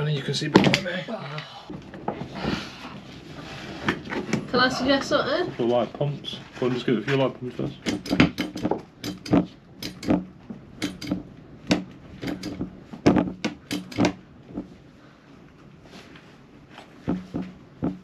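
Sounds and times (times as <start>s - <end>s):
pliers clicking and knocking: 7.8s - 10.2s, 10.8s - 14.2s.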